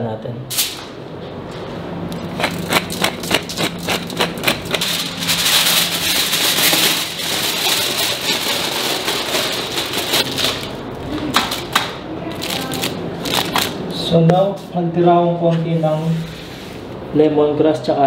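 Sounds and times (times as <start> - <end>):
aluminium foil crinkling: 2.4 - 13.8.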